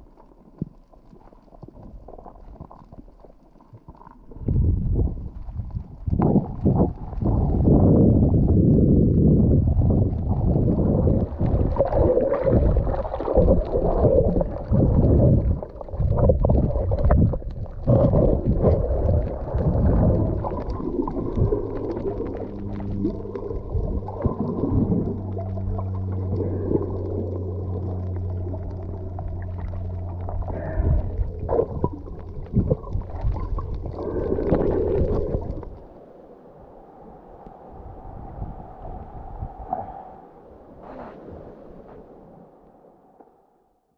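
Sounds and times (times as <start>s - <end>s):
water rumbling and sloshing underwater: 0.0s - 43.9s
steady low hum: 12.6s - 43.7s.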